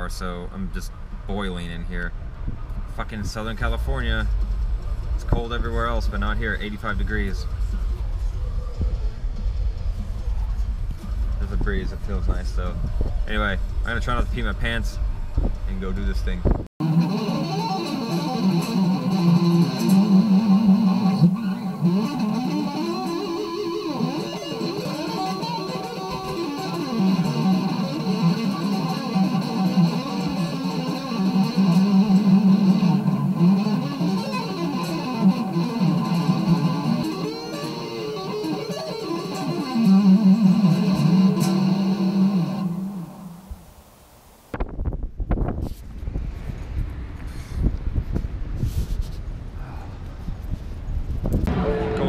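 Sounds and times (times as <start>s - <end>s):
electric guitar riffs: 16.8s - 43.7s, 51.4s - 52.0s.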